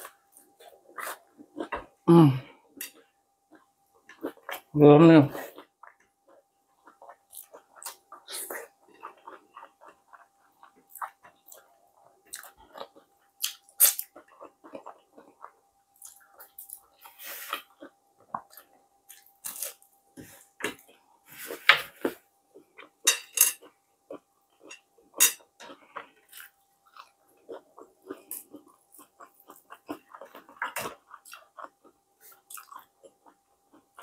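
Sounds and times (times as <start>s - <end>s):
close-up chewing: 5.5s - 21.0s, 23.6s - 34.0s.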